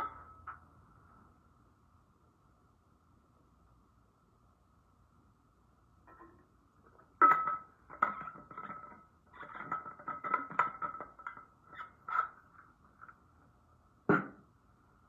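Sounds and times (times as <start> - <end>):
objects knocking and clinking: 6.1 - 11.6.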